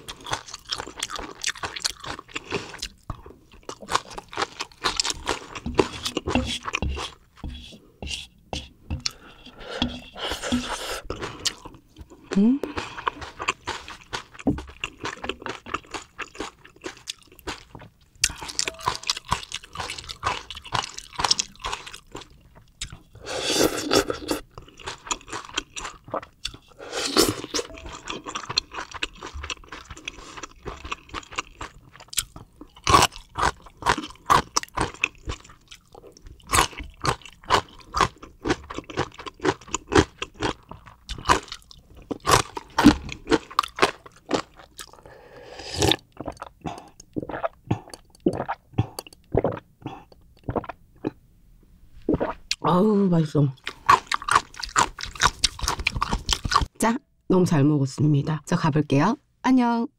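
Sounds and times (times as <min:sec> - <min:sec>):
crunchy food chewing: 0:00.0 - 0:07.4, 0:10.4 - 0:45.1, 0:53.6 - 0:56.7.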